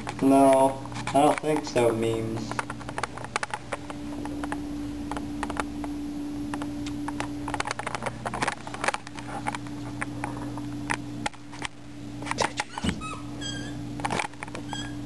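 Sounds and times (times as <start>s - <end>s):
small clicks and rustles: 0.0s - 5.8s, 6.5s - 12.8s
steady low hum: 0.0s - 15.0s.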